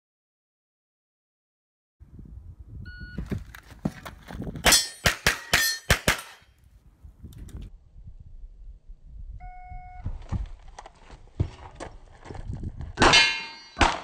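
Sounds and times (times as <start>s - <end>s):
steel targets ringing: 4.7s - 6.4s, 13.0s - 14.0s
pistol shots: 13.0s - 14.0s.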